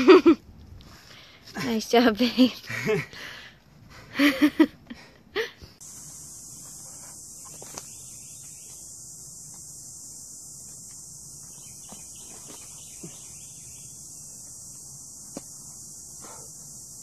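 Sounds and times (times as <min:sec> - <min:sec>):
high-pitched insect chorus: 0:05.8 - 0:17.0.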